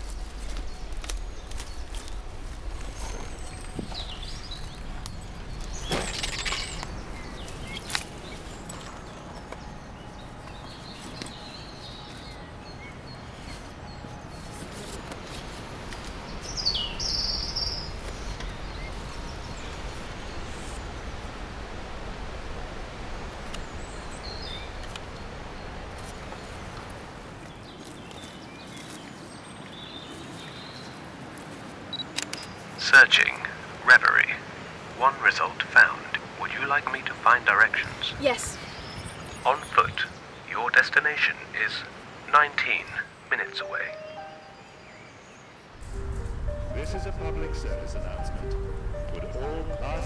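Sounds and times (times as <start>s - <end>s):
clothes and card rustling: 0.0s - 5.8s
small birds chirping: 0.0s - 21.2s, 23.4s - 34.3s, 35.1s - 50.0s
rustling of fabric and undergrowth: 0.0s - 21.8s, 22.6s - 33.6s.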